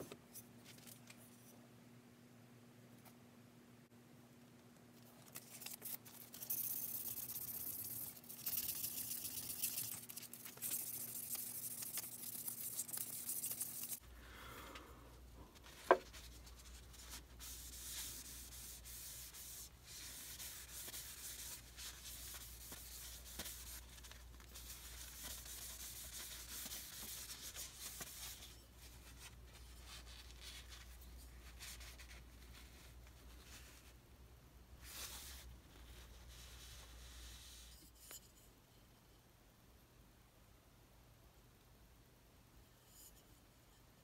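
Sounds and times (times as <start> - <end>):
paper towel wiping wood: 15.6 - 32.9.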